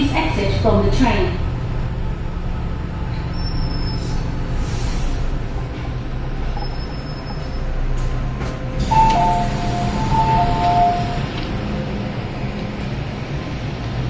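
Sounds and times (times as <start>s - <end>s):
train cabin rumble: 0.0s - 14.0s
two-note door chime: 8.9s - 11.2s.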